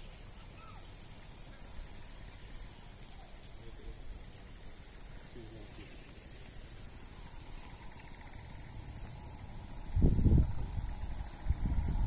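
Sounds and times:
crickets trilling: 0.0 - 12.0
low rumble: 7.1 - 12.0.

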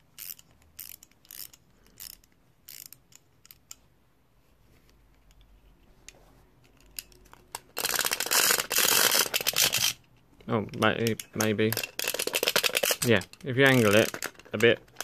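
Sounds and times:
plastic toy jaws clattering: 6.8 - 10.0, 10.8 - 15.0.

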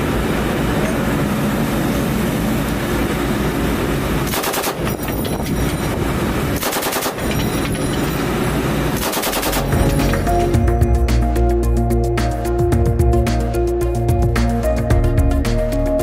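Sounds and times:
steady low rumble: 0.0 - 16.0
machine gun bursts: 4.3 - 5.7, 6.6 - 8.1, 9.0 - 10.1.

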